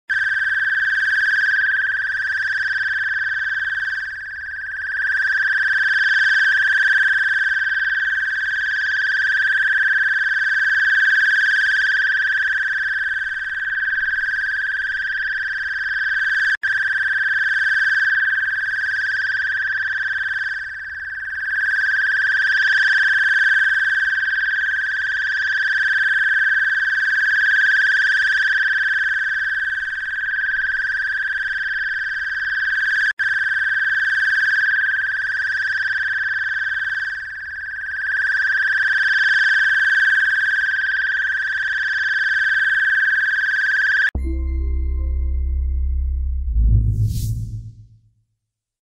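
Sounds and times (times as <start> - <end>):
high-pitched electronic tone: 44.2 - 48.1.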